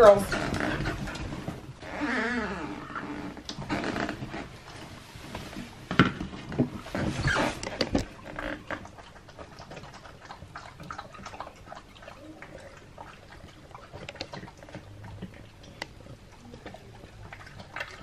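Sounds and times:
dogs chewing and lapping: 0:00.0 - 0:18.0.

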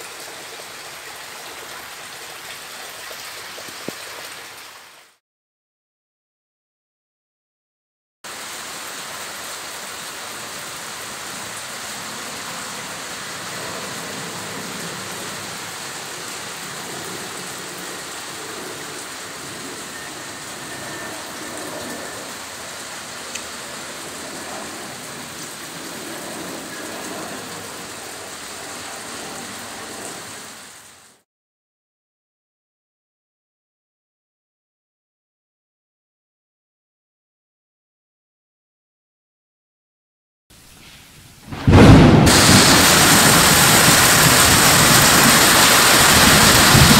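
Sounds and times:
heavy rain falling: 0:00.0 - 0:05.2, 0:08.3 - 0:31.2, 0:40.6 - 0:46.9.

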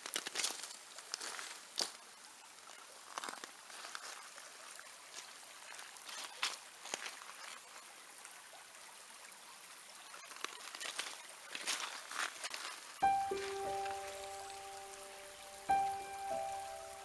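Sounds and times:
rain ticks and taps: 0:00.0 - 0:02.0, 0:05.1 - 0:08.4, 0:10.2 - 0:17.0
stream water flowing: 0:00.3 - 0:17.0.

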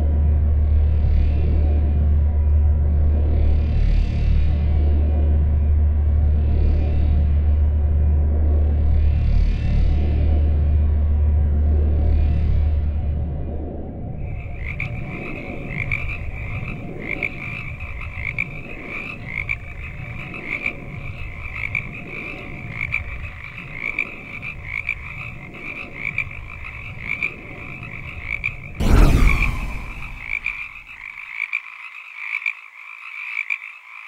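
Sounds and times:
frog chorus: 0:14.2 - 0:28.8, 0:29.7 - 0:34.0
loud crash: 0:28.8 - 0:30.9.

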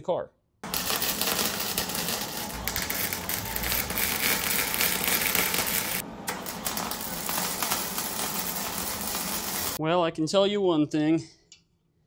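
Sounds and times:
welder arc crackling: 0:00.6 - 0:09.8.

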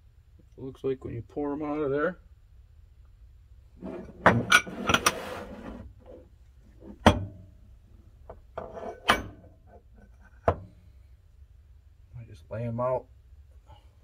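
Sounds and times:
metal mold pieces clinking: 0:08.6 - 0:10.6.

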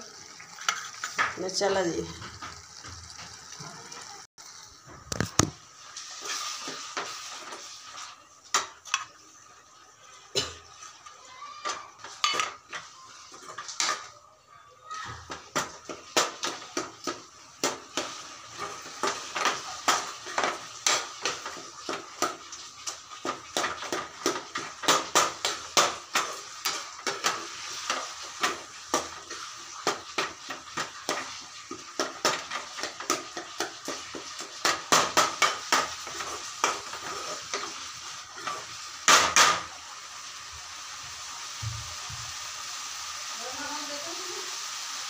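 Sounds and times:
metal kitchenware clattering: 0:12.0 - 0:14.1.

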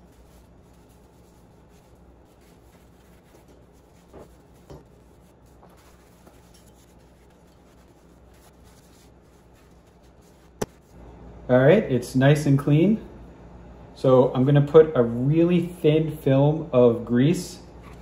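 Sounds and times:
paper towel rubbing metal: 0:00.0 - 0:11.0
low steady hum: 0:00.0 - 0:18.0.

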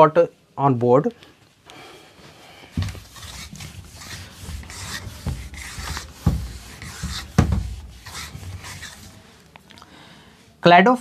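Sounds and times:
scratchy rubbing strokes on board: 0:02.7 - 0:09.2.

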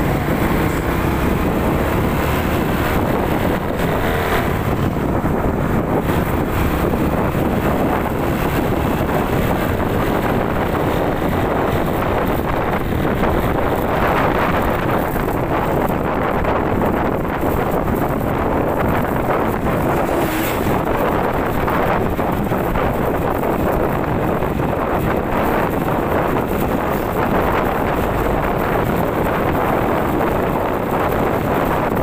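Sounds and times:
motorcycle running: 0:00.0 - 0:32.0
wind rushing over microphone: 0:00.0 - 0:32.0.

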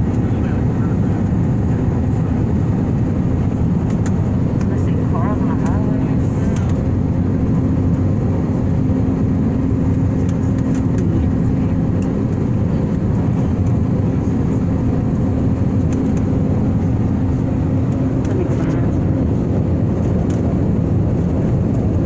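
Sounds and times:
airliner cabin engine rumble: 0:00.0 - 0:22.0.

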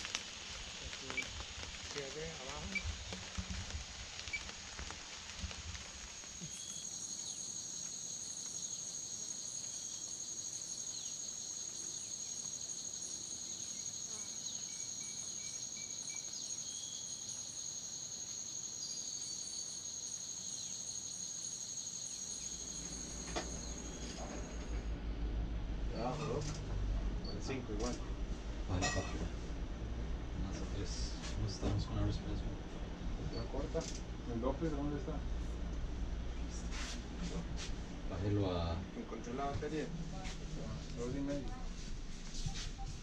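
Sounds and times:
insects shrilling and trilling: 0:00.0 - 0:24.7.

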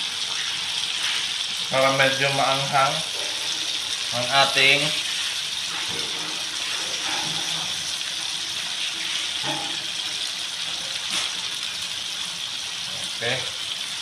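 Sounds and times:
vegetables sizzling in a wok: 0:00.0 - 0:14.0.

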